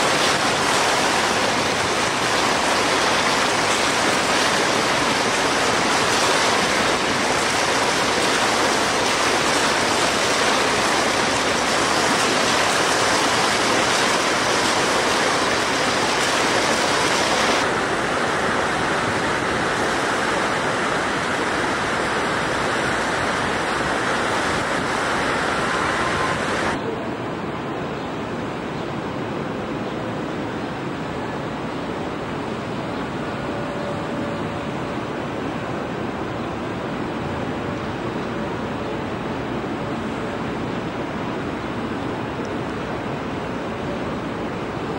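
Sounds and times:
fountain water splashing: 0.0s - 26.8s.

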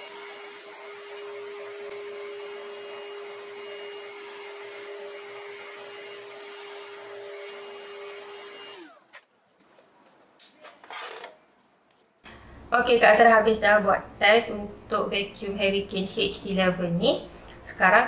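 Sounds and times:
vacuum motor whine: 0.0s - 9.2s.

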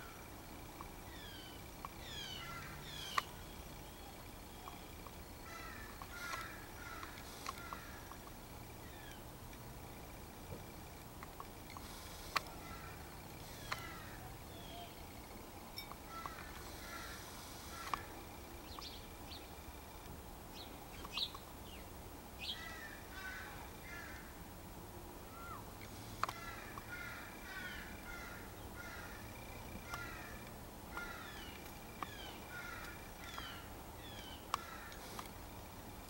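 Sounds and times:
crow calling: 1.1s - 8.2s, 12.3s - 15.0s, 16.0s - 18.2s, 22.4s - 24.4s, 25.3s - 35.2s
sharp clicks: 2.8s - 3.4s, 13.2s - 14.0s, 25.8s - 26.9s.

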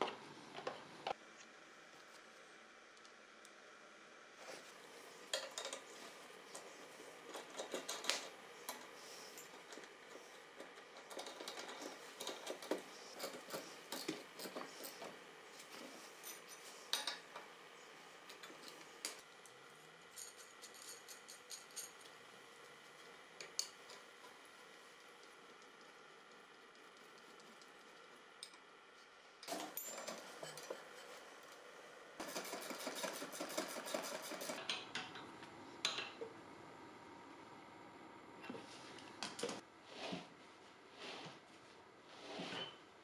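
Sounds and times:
steel parts clinking: 20.1s - 22.1s.

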